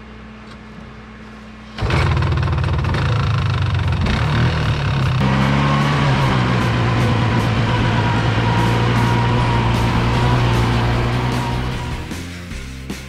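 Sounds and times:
atv engine revving: 1.8 - 12.2.

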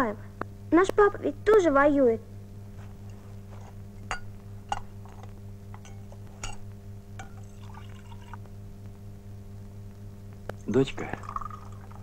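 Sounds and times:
steady low hum: 0.0 - 12.0
mug clinking against metal dishes: 4.1 - 4.9, 5.8 - 6.6, 7.2 - 7.5
milk being poured: 7.4 - 8.4, 11.0 - 12.0.

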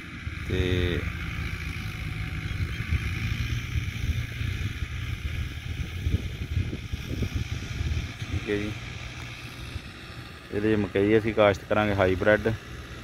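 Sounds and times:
wind rumble on microphone: 0.0 - 10.1
distant diesel tractor running: 0.0 - 13.0.

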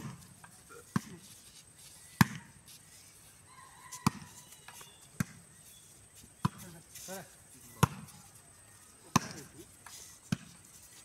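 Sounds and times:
hands slapping a volleyball: 9.1 - 9.4.

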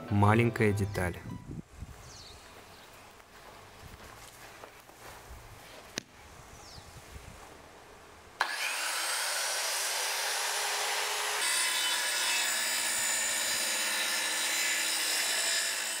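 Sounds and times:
saw blade cutting plywood: 8.4 - 16.0.

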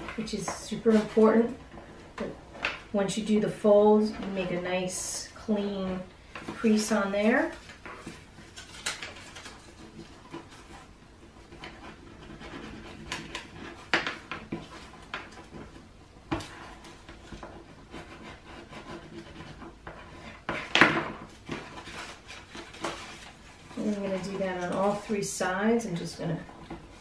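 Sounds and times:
paper rustling and crinkling: 6.3 - 27.0.

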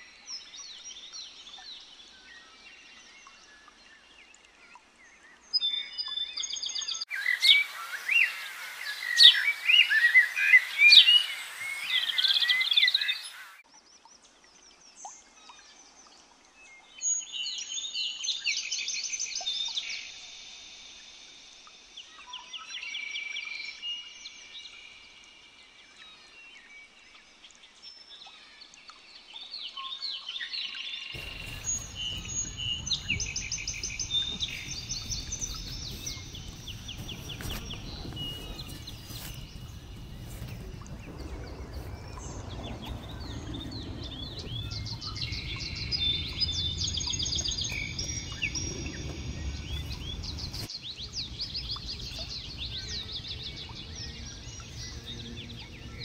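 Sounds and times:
birds singing and chirping: 5.6 - 13.6, 31.2 - 56.0.

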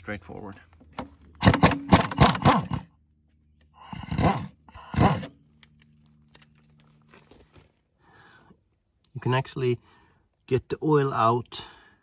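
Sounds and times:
faint steady hum: 0.1 - 12.0
pneumatic impact wrench hammering: 1.4 - 2.9, 4.0 - 5.4.

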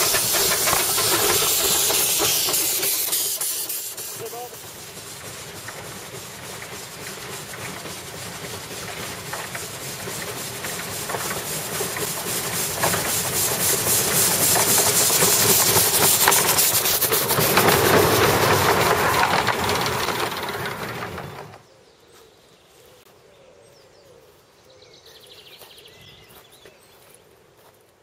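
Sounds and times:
rail clatter: 0.0 - 21.6
steam locomotive hissing and chuffing: 0.0 - 21.6.

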